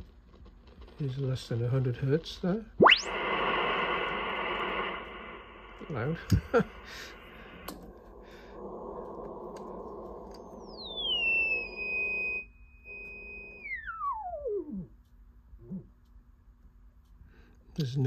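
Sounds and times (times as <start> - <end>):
receiver hiss with low hum: 0.0 - 18.0
beat-note whistle: 2.8 - 3.2, 10.3 - 14.9.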